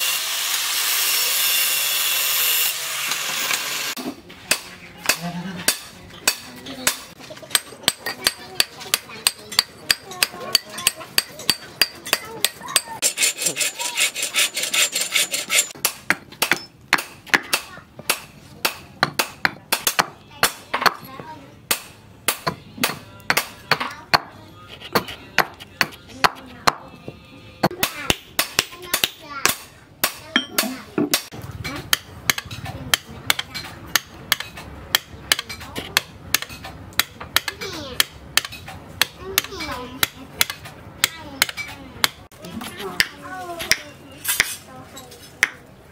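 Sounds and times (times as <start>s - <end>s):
saw-like scraping on wood: 12.2s - 15.8s, 24.6s - 26.9s.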